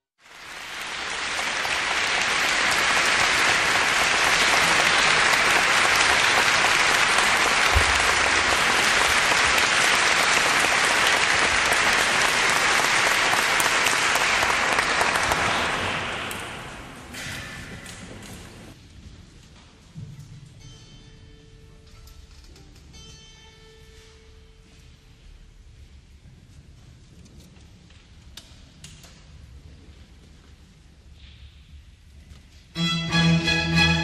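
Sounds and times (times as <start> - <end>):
audience applauding: 0.2 - 17.2.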